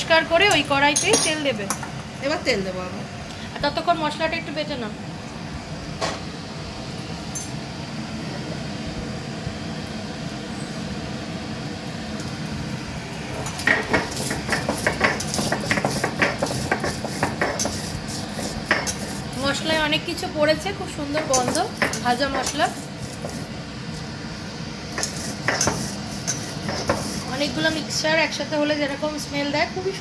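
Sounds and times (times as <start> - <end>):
steady background hum: 0.0 - 30.0
stone roller grinding spices: 13.3 - 23.6, 24.8 - 28.9.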